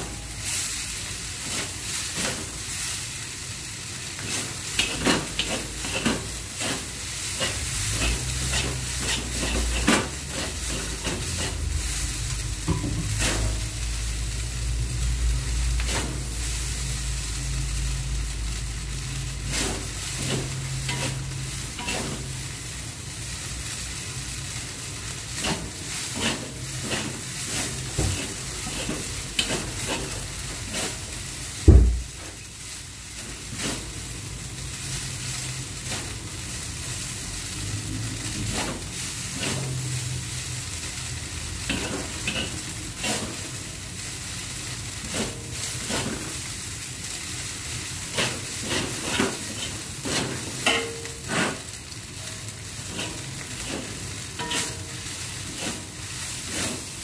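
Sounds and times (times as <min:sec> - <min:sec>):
noodles sizzling in a wok: 0:00.0 - 0:57.0
chopsticks scraping a wok: 0:01.4 - 0:02.6, 0:04.2 - 0:12.4, 0:13.0 - 0:13.9, 0:15.7 - 0:16.4, 0:19.4 - 0:22.8, 0:24.6 - 0:31.3, 0:33.2 - 0:34.2, 0:37.6 - 0:40.6, 0:41.5 - 0:44.0, 0:45.0 - 0:47.2, 0:48.0 - 0:57.0
loud thump: 0:31.6 - 0:32.1.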